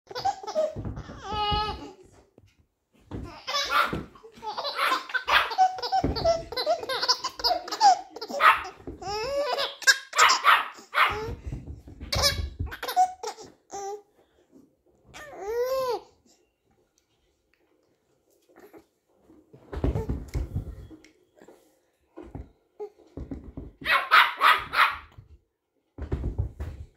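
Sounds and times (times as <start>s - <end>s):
baby laughing: 0.1s - 2.0s, 3.3s - 10.9s, 12.1s - 14.0s
dog barking: 3.6s - 4.1s, 8.4s - 8.8s, 10.2s - 11.3s, 23.8s - 25.1s.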